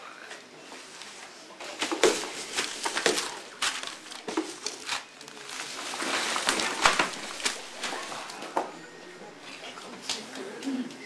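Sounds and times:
paper crinkling and rustling: 0:00.9 - 0:09.7.

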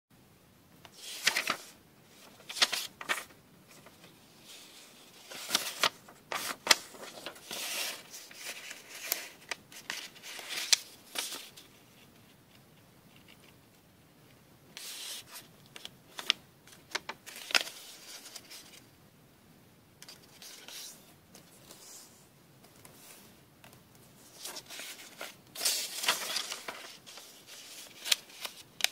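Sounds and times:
paper creases crackling: 0:00.9 - 0:11.7, 0:24.2 - 0:28.9
paper rustling and crinkling: 0:00.9 - 0:12.6, 0:14.8 - 0:18.8, 0:24.2 - 0:28.9.

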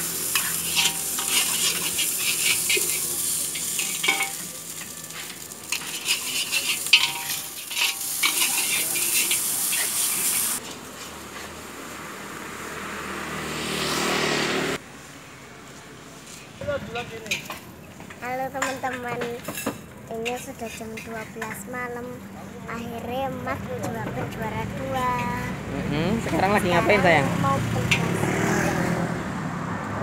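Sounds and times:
rice sizzling in a wok: 0:00.0 - 0:12.0
metal spatula scraping a wok: 0:00.2 - 0:10.7.

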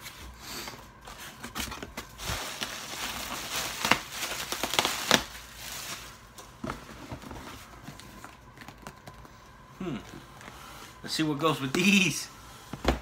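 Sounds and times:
plastic packing material crinkling: 0:01.1 - 0:09.3.

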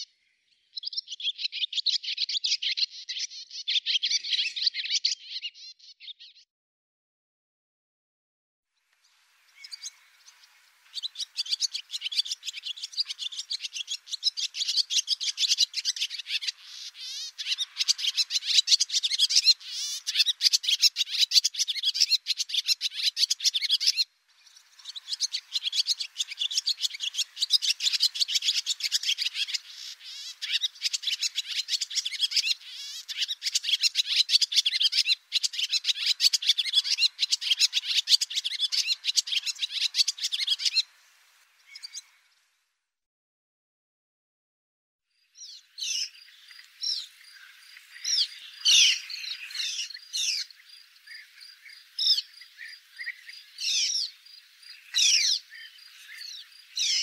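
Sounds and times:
swallow twittering: 0:09.5 - 0:42.2, 0:45.4 - 0:57.0.

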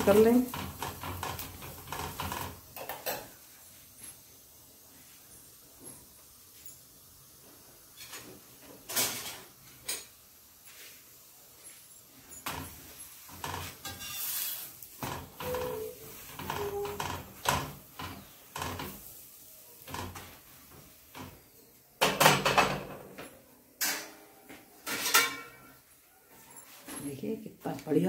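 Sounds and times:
metal spatula scraping iron griddle: 0:00.0 - 0:03.3, 0:07.9 - 0:10.1, 0:11.7 - 0:21.6, 0:24.8 - 0:25.8.

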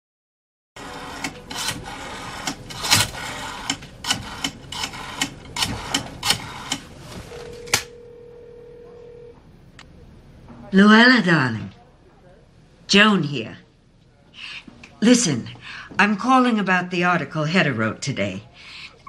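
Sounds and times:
steady telephone tone: 0:07.3 - 0:09.4.

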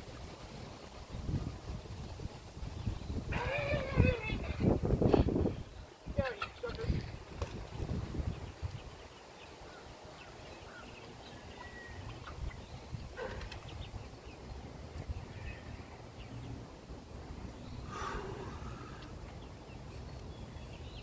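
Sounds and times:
chickens clucking: 0:06.1 - 0:08.9, 0:09.6 - 0:15.1.

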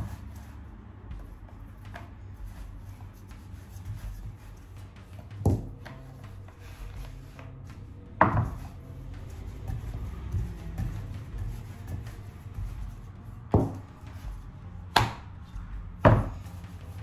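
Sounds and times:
rolling pin rumbling on dough: 0:00.0 - 0:17.0
rolling pin knocking on board: 0:05.4 - 0:06.4, 0:08.1 - 0:12.8, 0:13.5 - 0:13.9, 0:16.0 - 0:16.4.

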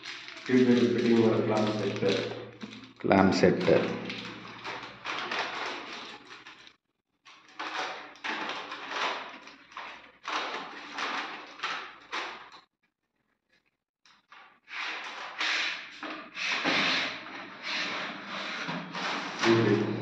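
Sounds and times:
plastic and metal scraping and clicking: 0:00.0 - 0:12.7.

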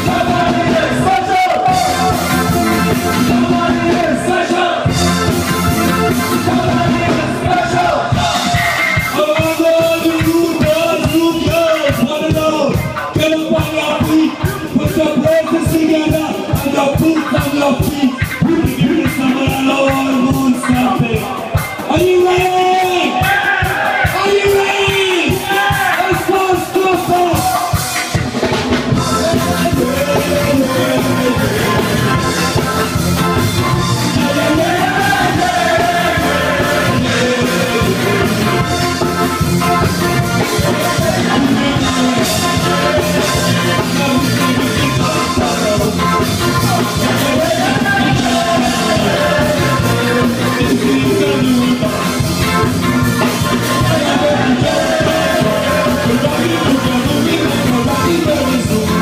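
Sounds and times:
group of voices singing: 0:00.0 - 0:11.2, 0:23.1 - 0:26.5, 0:28.9 - 0:59.0
ska band playing: 0:00.0 - 0:59.0.

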